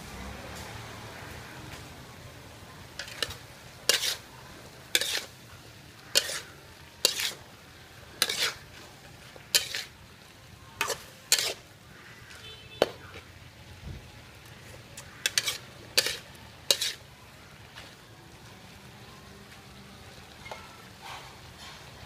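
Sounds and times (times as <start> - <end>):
faint sizzle of frying: 0.0 - 22.0
metal spatula scraping a wok: 2.9 - 13.4, 14.8 - 17.2, 20.4 - 22.0.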